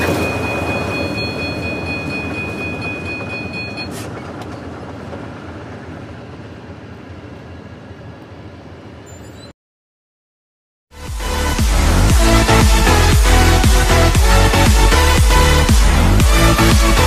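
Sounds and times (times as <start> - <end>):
crossing bell ringing: 0.0 - 4.2, 9.0 - 9.5
diesel locomotives rumbling: 0.0 - 9.5, 11.0 - 17.0.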